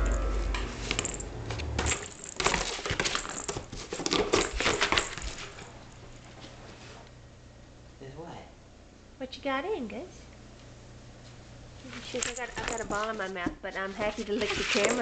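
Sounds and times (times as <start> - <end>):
puppy rummaging in cardboard box: 1.9 - 5.8, 11.9 - 15.0.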